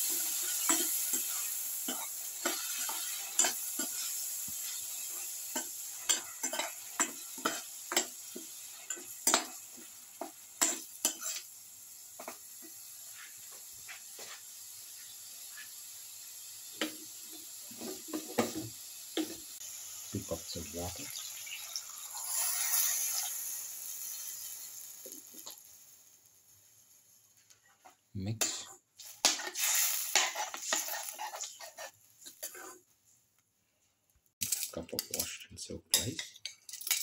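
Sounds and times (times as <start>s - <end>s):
metal spoon scraping a pan: 0.0s - 11.5s, 22.1s - 24.7s, 28.4s - 32.8s, 35.9s - 37.0s
food sizzling: 0.0s - 33.2s, 34.3s - 37.0s.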